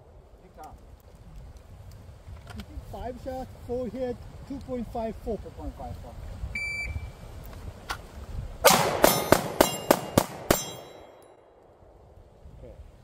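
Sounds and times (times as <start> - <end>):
shot timer start beep: 6.6 - 7.0
pistol shots: 8.6 - 11.2.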